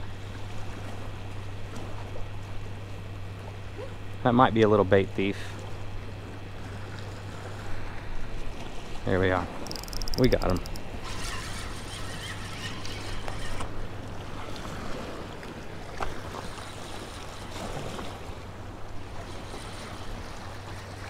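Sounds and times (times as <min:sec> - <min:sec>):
fishing reel cranking: 0:09.5 - 0:13.8
small waves splashing on rocks: 0:13.6 - 0:18.4.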